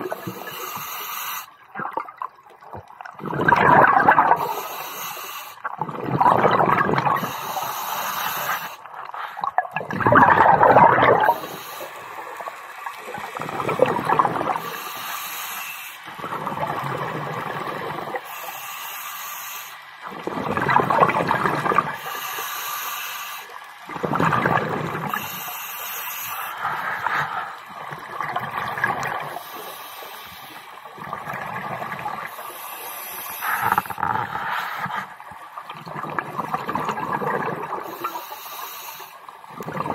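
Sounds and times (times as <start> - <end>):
exhaled bubbles underwater: 0.0 - 0.8, 1.6 - 4.9, 5.6 - 15.3, 16.1 - 18.6, 20.0 - 22.4, 23.5 - 25.5, 26.5 - 38.3, 39.2 - 39.9
regulator inhalation hiss: 0.1 - 1.6, 4.4 - 5.6, 7.2 - 8.9, 11.3 - 12.4, 14.5 - 16.1, 18.1 - 19.9, 22.0 - 23.6, 25.1 - 27.6, 29.2 - 30.8, 32.2 - 35.0, 37.8 - 39.3.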